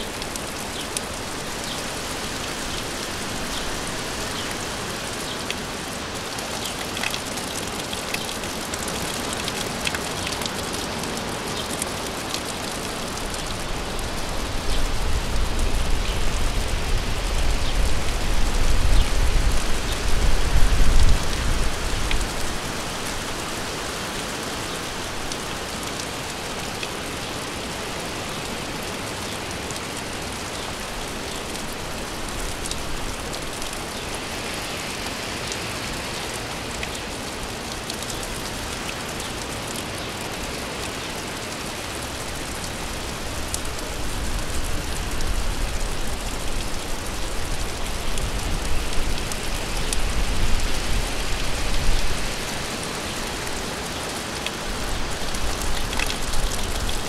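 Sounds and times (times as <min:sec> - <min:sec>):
raindrop ticks: 0:00.0 - 0:01.8, 0:06.2 - 0:16.6, 0:24.8 - 0:57.0
steady rain falling: 0:00.0 - 0:57.0.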